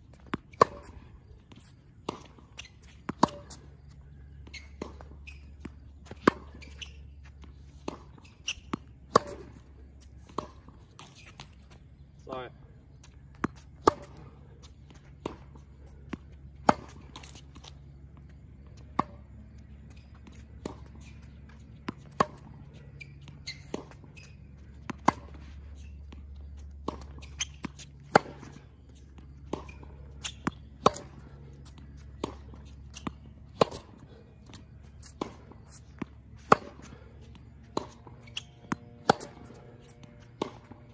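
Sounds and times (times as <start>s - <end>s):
low hum: 0.0s - 40.9s
tennis racket hitting ball: 0.2s - 1.0s, 2.0s - 11.6s, 13.3s - 17.8s, 20.2s - 40.9s.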